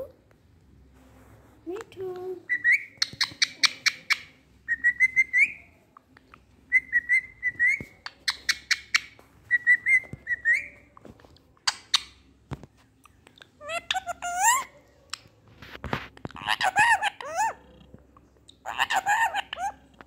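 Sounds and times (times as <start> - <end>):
parakeet chirping: 2.5 - 10.9, 13.1 - 15.2, 16.4 - 17.8, 18.6 - 20.0.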